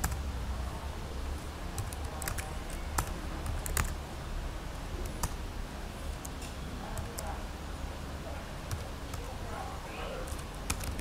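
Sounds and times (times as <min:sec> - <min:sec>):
keyboard keystrokes: 0:10.3 - 0:11.0.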